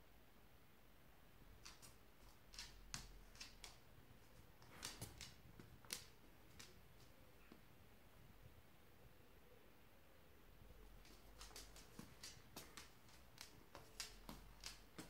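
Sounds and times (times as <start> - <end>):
faint sharp clicks: 11.0 - 15.0.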